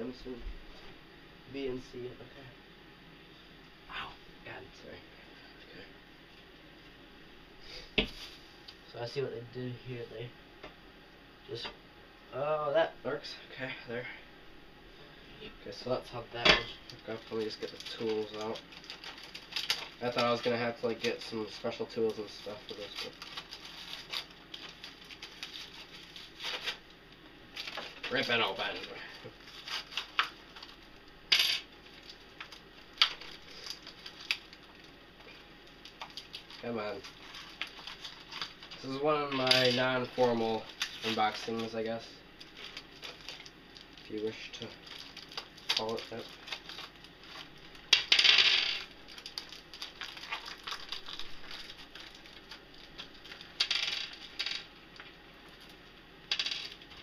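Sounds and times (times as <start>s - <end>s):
plastic packet crinkling: 16.8s - 26.8s, 27.5s - 31.0s, 31.8s - 41.8s, 42.4s - 48.0s, 48.8s - 54.7s.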